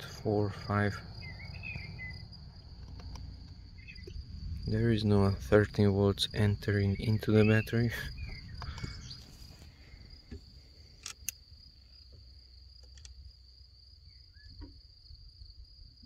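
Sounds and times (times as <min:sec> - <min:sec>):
crickets trilling: 0:00.0 - 0:16.0
low background rumble: 0:00.0 - 0:16.0
sharp clicks: 0:02.6 - 0:04.2, 0:08.2 - 0:09.2, 0:11.0 - 0:11.4, 0:12.8 - 0:13.2.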